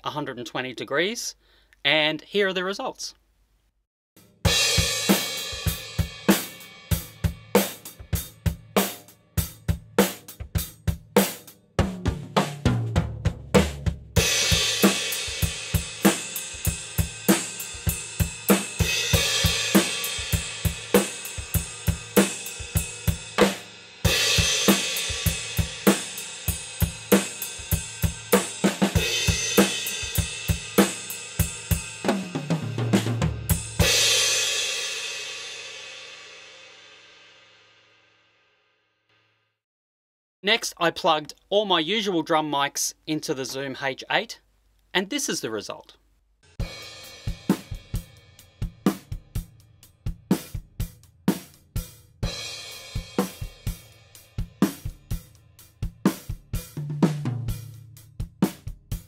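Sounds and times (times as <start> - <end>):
drum kit groove: 4.2 - 36.3, 46.5 - 59.0.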